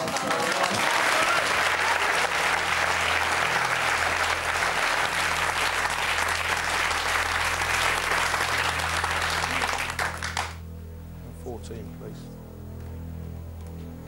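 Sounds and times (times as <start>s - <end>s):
audience applauding: 0.0s - 10.6s
low steady hum: 2.7s - 14.0s.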